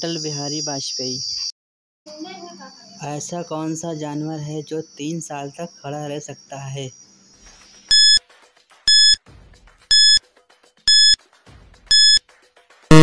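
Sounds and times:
short electronic beeps: 0:07.9 - 0:08.2, 0:08.9 - 0:09.2, 0:09.9 - 0:10.2, 0:10.9 - 0:11.2, 0:11.9 - 0:12.2.

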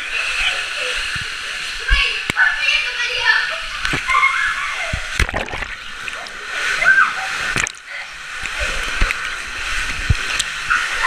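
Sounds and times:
water sloshing in a zorb ball: 0:00.0 - 0:11.0.

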